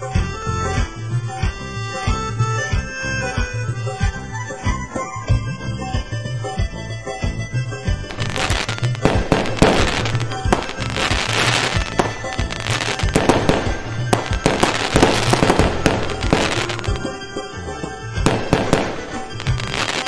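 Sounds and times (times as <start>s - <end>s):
background music with beat: 0.0s - 20.0s
fireworks bangs and crackling: 4.6s - 20.0s.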